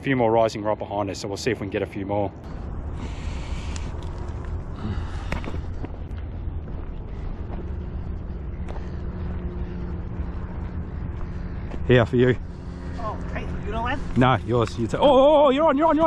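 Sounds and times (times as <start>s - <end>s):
low rumble: 2.3s - 16.0s
footsteps crunching on gravel: 3.1s - 9.5s.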